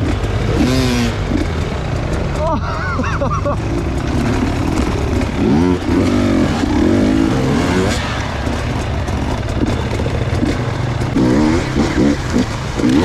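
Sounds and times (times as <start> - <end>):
engine throttle revs: 0.0 - 2.5, 3.6 - 13.0
dirt bike engines droning: 0.0 - 13.0.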